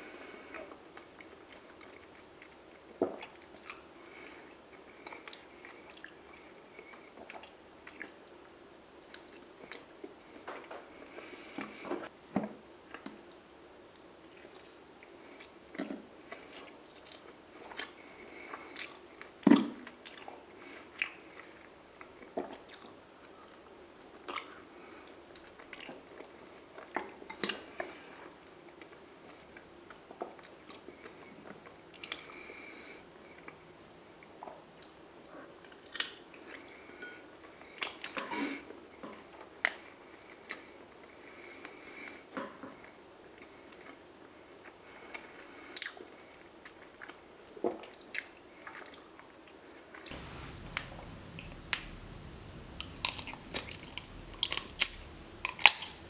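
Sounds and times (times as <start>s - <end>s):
wet chewing and lip smacking: 3.2s - 3.9s, 50.1s - 56.0s.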